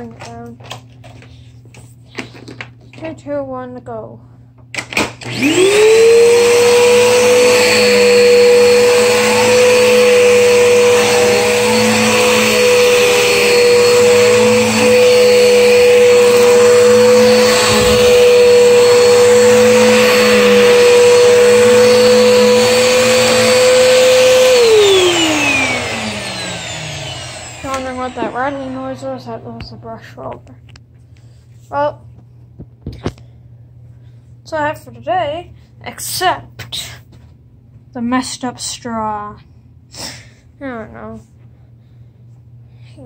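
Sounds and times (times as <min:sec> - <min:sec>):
vacuum cleaner motor whine: 0:04.8 - 0:30.1.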